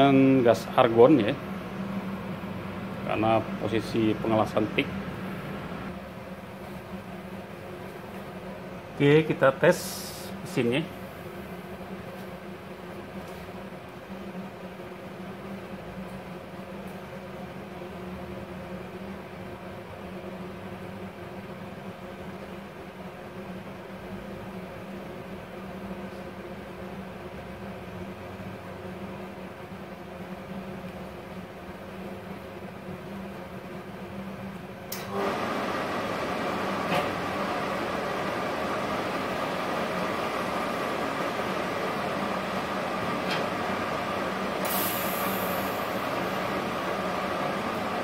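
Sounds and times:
welder machine hum with hiss: 0.0s - 48.0s
click: 34.9s - 35.1s
brief high hiss: 44.6s - 46.0s.

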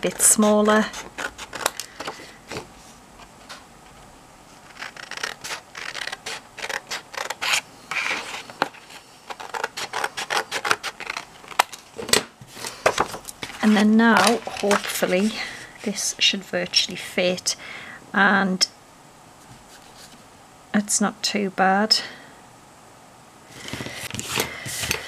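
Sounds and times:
card rustling: 4.6s - 11.9s, 12.5s - 16.1s, 23.5s - 25.0s.

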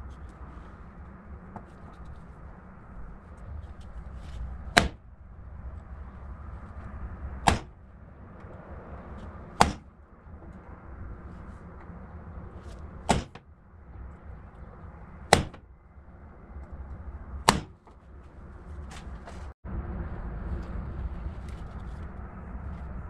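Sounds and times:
hammer striking metal punch: 4.8s - 5.0s, 7.4s - 7.8s, 9.6s - 9.9s, 13.1s - 13.4s, 15.3s - 15.6s, 17.5s - 17.8s.

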